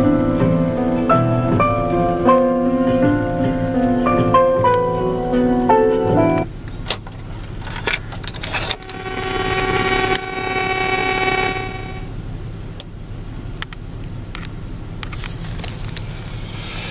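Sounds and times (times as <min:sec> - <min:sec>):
held note from speakers: 0:07.5 - 0:12.2.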